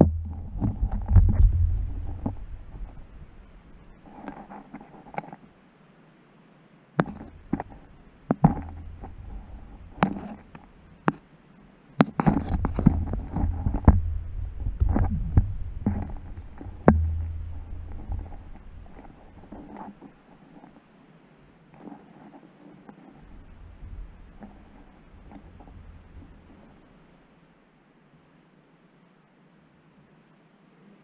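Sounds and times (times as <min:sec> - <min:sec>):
low rumbling and scraping: 0:00.0 - 0:04.5, 0:07.1 - 0:10.8, 0:12.3 - 0:20.7
camera knocking against rock: 0:07.0 - 0:09.4, 0:12.0 - 0:14.1, 0:14.8 - 0:20.1.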